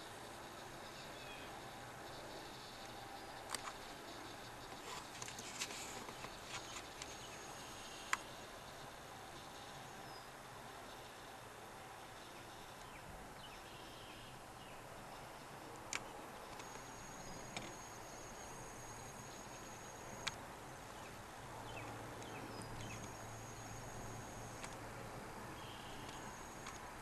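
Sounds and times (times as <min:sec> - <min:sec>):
distant bird calls: 0:00.0 - 0:27.0
steady hiss: 0:00.0 - 0:27.0
sharp clicks: 0:26.0 - 0:26.9.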